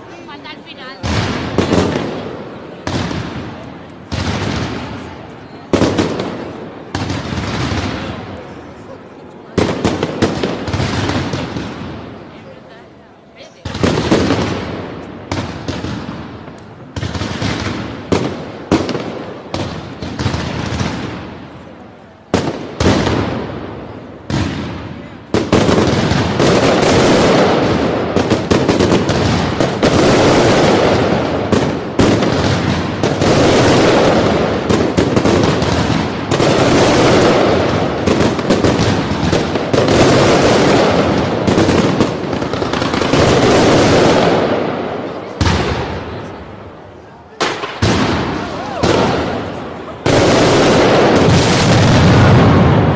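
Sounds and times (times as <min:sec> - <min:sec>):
fireworks exploding: 0:00.0 - 0:52.9.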